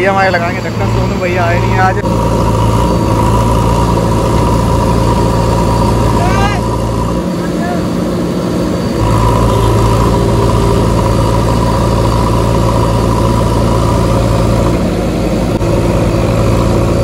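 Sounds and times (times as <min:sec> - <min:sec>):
diesel engine revving: 0:00.0 - 0:17.0.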